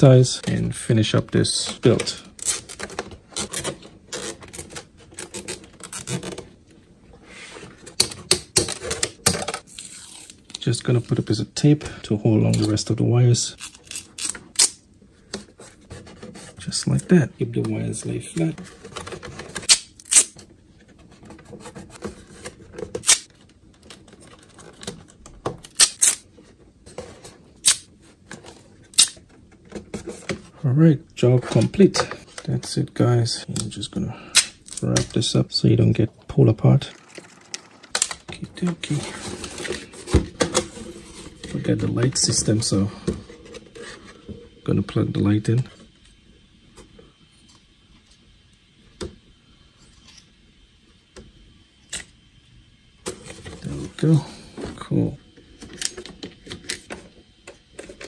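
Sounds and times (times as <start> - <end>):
plastic zip ties clicking: 23.0 - 23.3, 25.7 - 26.2, 27.6 - 27.9, 29.0 - 29.2.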